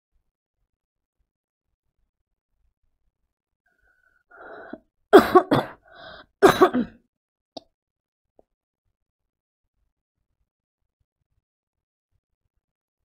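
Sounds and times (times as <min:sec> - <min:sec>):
woman coughing: 0:05.2 - 0:07.0.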